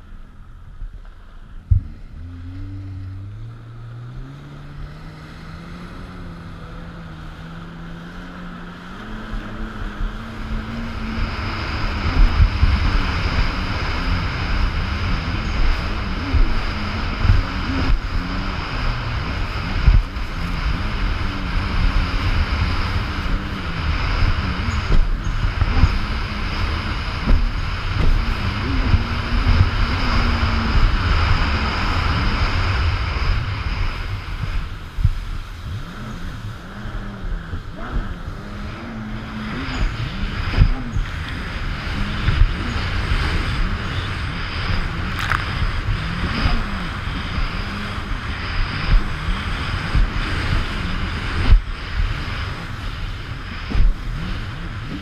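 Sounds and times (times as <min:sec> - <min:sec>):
jet ski engine running: 0:00.0 - 0:55.0
wind buffeting microphone: 0:01.6 - 0:55.0.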